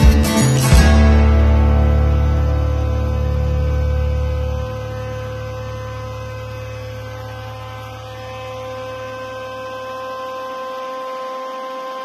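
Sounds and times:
electrical hum: 0.0s - 12.0s
mixer grinder motor rumble: 0.8s - 12.0s.

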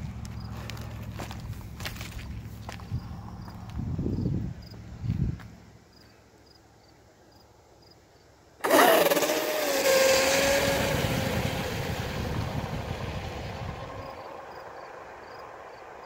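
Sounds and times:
electric motor whining: 8.6s - 13.8s.

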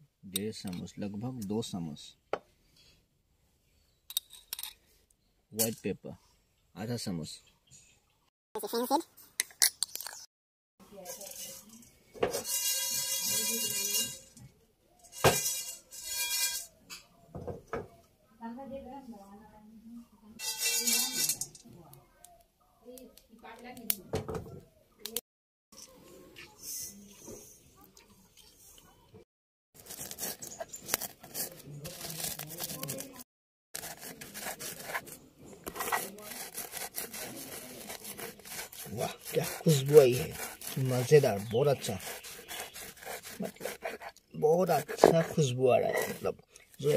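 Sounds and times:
spices rattling in a pan: 11.0s - 14.4s, 15.0s - 16.6s, 20.4s - 21.6s
metal pan ringing: 12.4s - 14.2s, 20.4s - 21.5s
stone grinding spices on slab: 29.8s - 33.2s, 33.8s - 46.9s.

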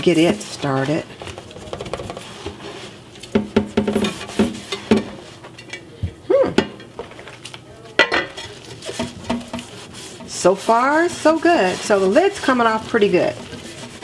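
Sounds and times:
sponge scrubbing a pot lid: 0.0s - 4.9s, 8.3s - 14.0s.

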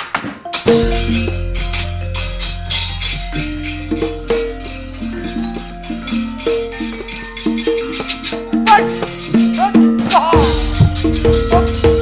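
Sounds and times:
metallophones playing a melody: 0.4s - 12.0s
bright metallic clash: 0.5s - 7.1s.

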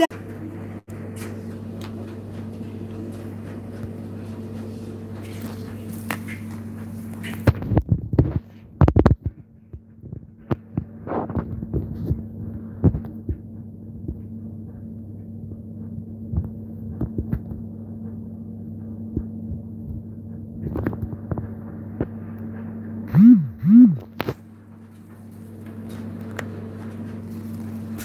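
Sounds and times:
steady low hum: 0.0s - 28.0s
short rising and falling tones: 23.1s - 24.1s.

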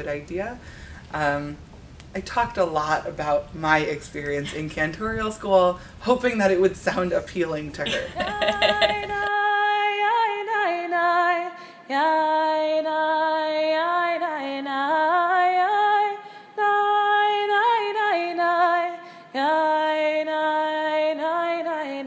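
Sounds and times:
woman singing wordless melody: 7.9s - 22.0s.

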